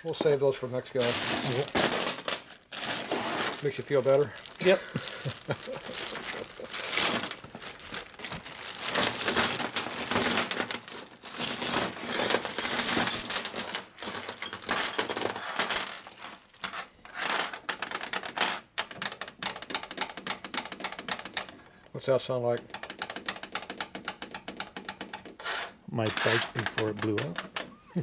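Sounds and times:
bolts clattering onto metal bench: 0:00.0 - 0:02.4
plastic bag rustling: 0:00.0 - 0:16.7
metal pieces clinking: 0:00.0 - 0:16.8.

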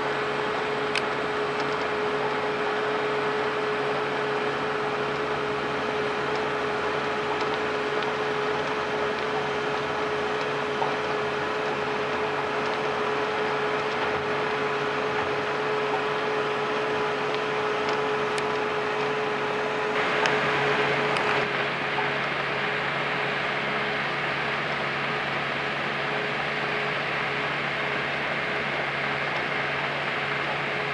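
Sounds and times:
constant mechanical whine: 0:00.0 - 0:30.9
slurry injector machine humming: 0:00.0 - 0:30.9.

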